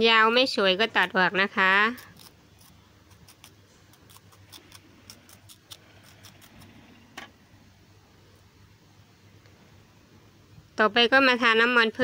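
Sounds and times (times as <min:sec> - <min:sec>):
scissors snipping leaf: 0:01.0 - 0:06.7.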